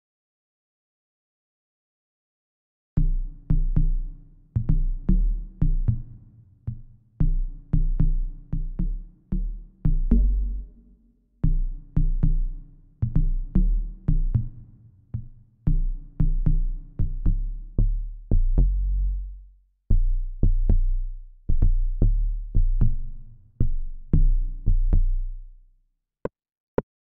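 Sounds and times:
deep electronic synth bass notes: 7.2s - 12.6s.

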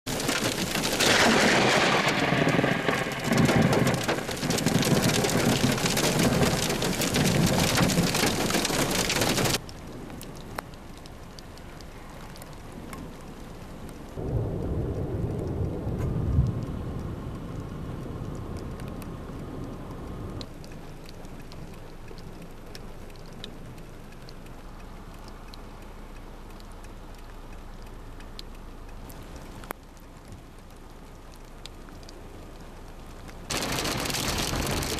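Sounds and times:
heavy rain: 0.1s - 34.9s
low rumble of thunder: 0.2s - 10.4s, 14.1s - 20.4s, 33.5s - 34.9s
loud thunder crack: 1.0s - 5.7s, 14.2s - 17.3s.

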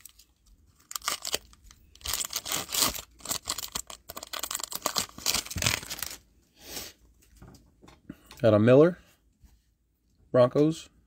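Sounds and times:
foil wrapper tearing and crinkling: 0.0s - 6.2s.

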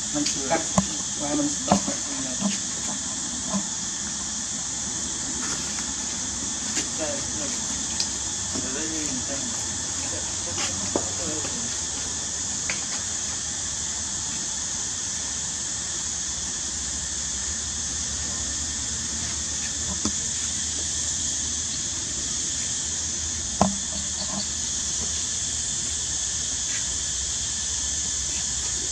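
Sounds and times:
high-pitched outdoor hiss: 0.0s - 28.9s.

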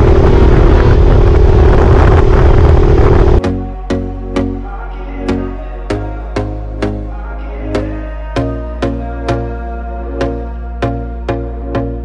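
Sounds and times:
sustained synth chords: 2.7s - 12.0s.

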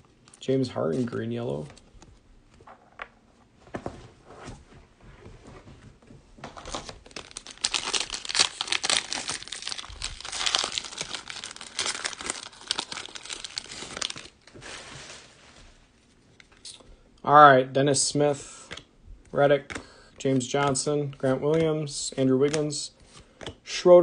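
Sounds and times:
plastic wrapper tearing and crinkling: 6.6s - 14.6s.

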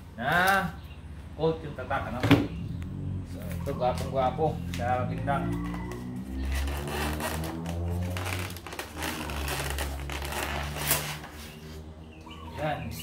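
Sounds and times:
styrofoam crinkling and scraping: 6.5s - 11.8s.

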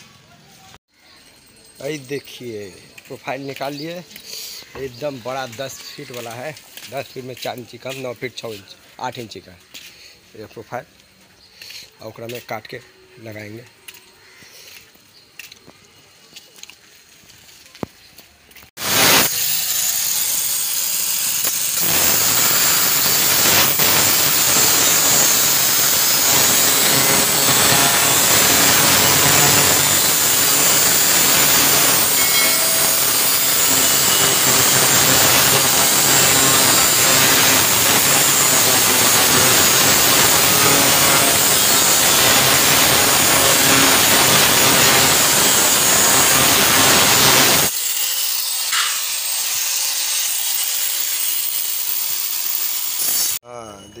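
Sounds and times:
angle grinder cutting steel: 18.8s - 53.4s.

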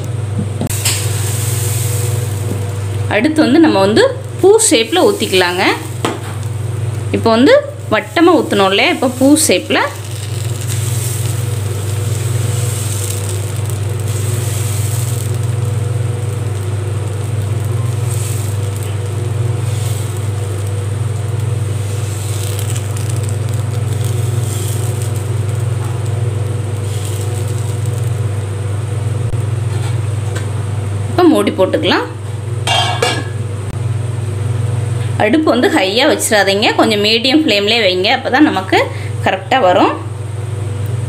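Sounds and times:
low hum: 0.0s - 31.2s
batter sizzling in a pan: 0.0s - 39.2s.

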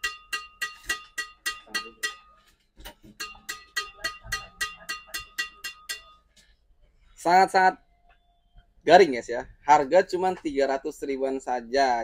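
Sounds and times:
racket strings struck pinging: 0.0s - 6.2s.

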